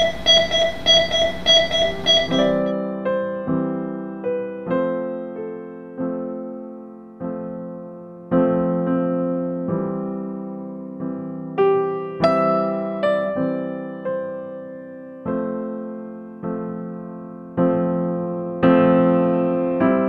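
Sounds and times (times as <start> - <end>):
metronome beeping: 0.0 - 2.8
gentle piano music: 0.0 - 20.0.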